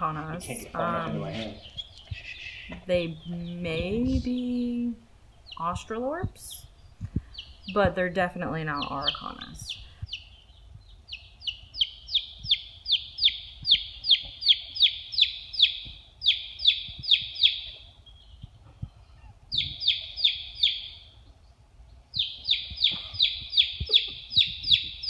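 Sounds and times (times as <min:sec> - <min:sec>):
chick peeping loudly: 0:00.8 - 0:21.5, 0:22.1 - 0:25.0.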